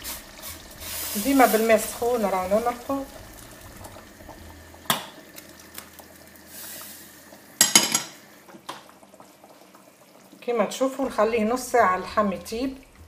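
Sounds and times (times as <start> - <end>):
stew bubbling: 0.0 - 13.0
water pouring into a pot: 0.0 - 13.0
kitchenware clattering against pot: 7.6 - 8.2.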